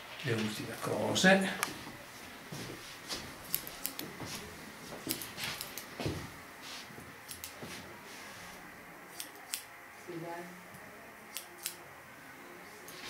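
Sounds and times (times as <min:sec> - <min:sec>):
soft rustles: 0:01.7 - 0:08.6
scissors snipping hair: 0:03.4 - 0:04.1, 0:05.1 - 0:05.9, 0:07.2 - 0:07.6, 0:09.1 - 0:09.7, 0:11.3 - 0:11.8.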